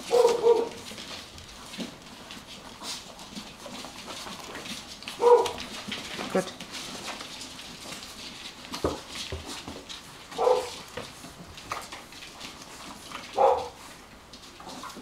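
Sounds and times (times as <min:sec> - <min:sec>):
dog barks: 0:00.0 - 0:00.8, 0:05.2 - 0:05.6, 0:10.4 - 0:10.8, 0:13.4 - 0:13.8
faint scuffling: 0:00.0 - 0:15.0.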